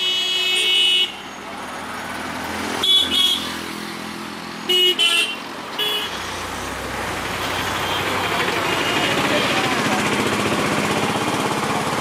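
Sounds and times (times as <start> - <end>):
vehicle horns honking: 0.0 - 1.3, 2.8 - 3.6, 4.6 - 6.3, 7.5 - 9.7
vehicle engine running: 6.2 - 12.0.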